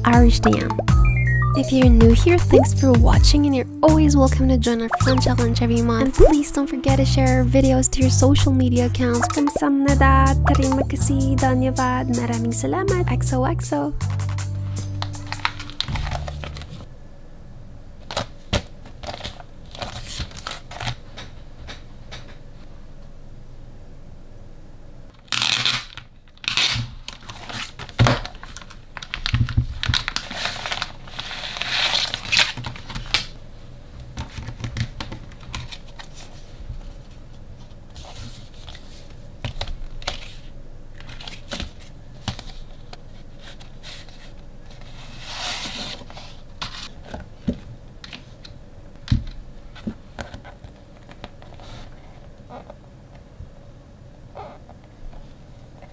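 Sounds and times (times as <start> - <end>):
plastic bag tearing and rustling: 25.2 - 33.3.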